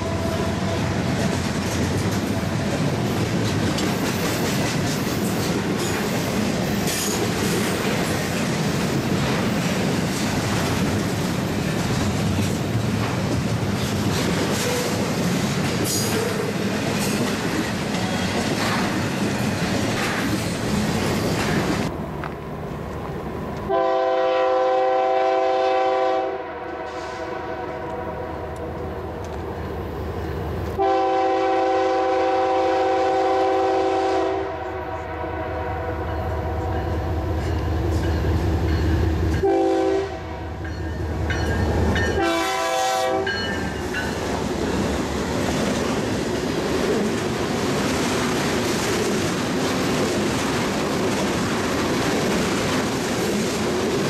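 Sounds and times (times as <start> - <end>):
rumble of steel train wheels: 0.0 - 54.0
locomotive air horn blasts: 23.7 - 28.6, 30.8 - 36.7, 39.4 - 40.6, 42.2 - 43.4.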